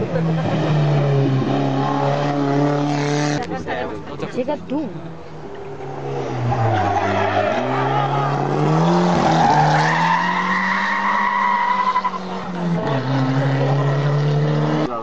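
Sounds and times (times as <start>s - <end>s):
race car engine accelerating: 5.5s - 15.0s.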